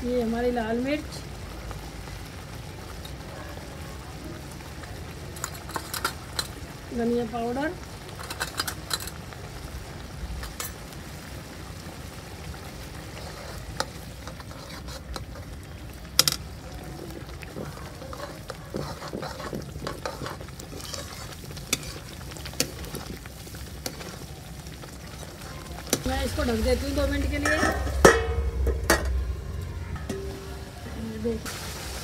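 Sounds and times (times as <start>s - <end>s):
sauce sizzling and bubbling: 0.0s - 32.0s
metal spatula scraping pan: 13.2s - 15.5s, 18.0s - 22.8s, 25.9s - 30.7s.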